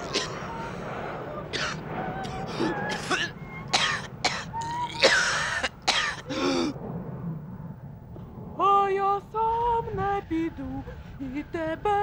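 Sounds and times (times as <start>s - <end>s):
person coughing hard: 2.9s - 6.8s.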